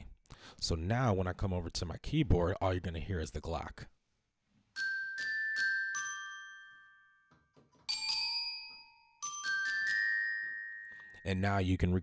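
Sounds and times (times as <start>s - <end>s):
glockenspiel notes ringing: 4.8s - 11.7s.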